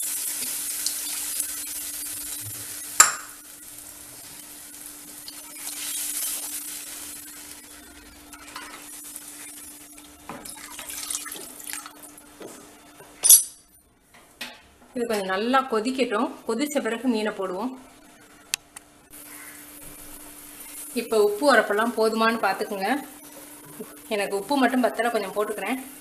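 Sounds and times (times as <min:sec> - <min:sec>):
water pouring into pot: 0:09.4 - 0:12.1.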